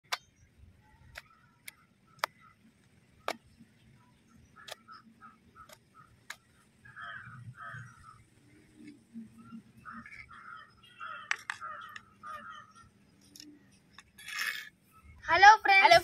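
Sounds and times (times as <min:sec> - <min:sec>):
sharp clicks: 0:00.0 - 0:00.3, 0:04.6 - 0:05.0, 0:05.6 - 0:06.5
crows cawing: 0:04.5 - 0:08.3, 0:09.4 - 0:12.9.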